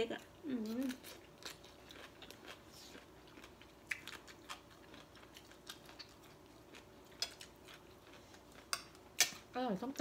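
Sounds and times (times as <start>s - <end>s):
low steady hum: 0.0s - 10.0s
chewing: 0.6s - 9.5s
fork and spoon clicking on plates: 6.8s - 7.8s, 8.5s - 9.4s.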